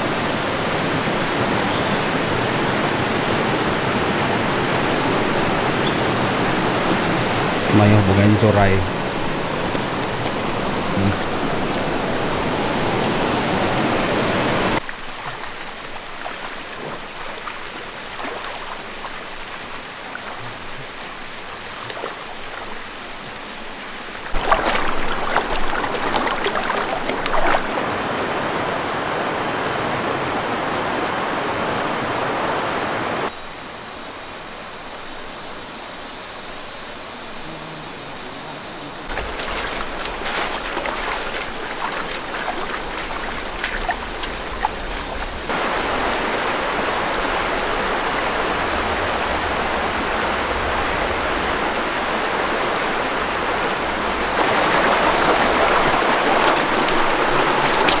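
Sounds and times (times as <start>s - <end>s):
high-pitched whine: 0.0s - 27.8s, 32.9s - 58.0s
river running over rocks: 0.0s - 33.3s, 38.1s - 58.0s
splashes of person wading: 14.8s - 27.8s, 39.0s - 45.6s, 54.4s - 58.0s.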